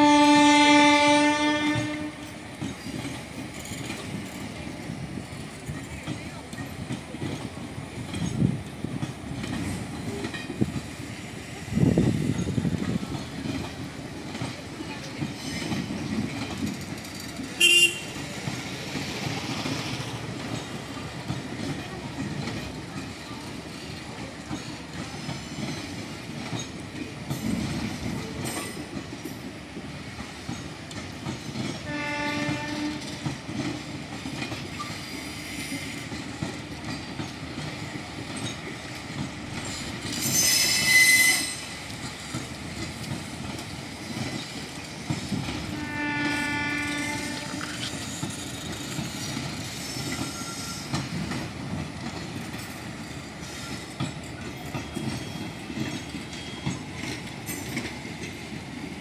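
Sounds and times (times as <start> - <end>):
train horn: 0.0 - 2.4, 17.6 - 18.2, 31.8 - 33.2, 40.6 - 41.6, 45.7 - 47.9
train wheels clattering over joints: 1.5 - 59.0
loud high-pitched squeal: 40.3 - 41.7.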